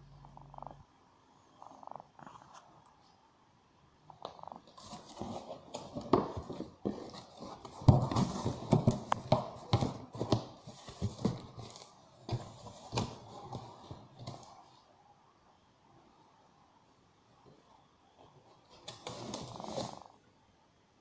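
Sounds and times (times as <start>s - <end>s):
cardboard scraping and rustling: 4.6s - 14.5s, 18.8s - 20.1s.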